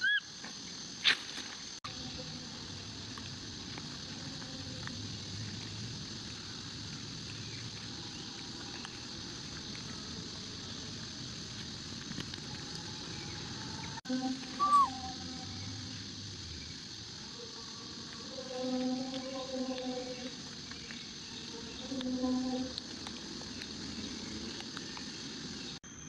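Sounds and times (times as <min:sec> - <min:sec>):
high squeak: 0:14.6 - 0:15.0.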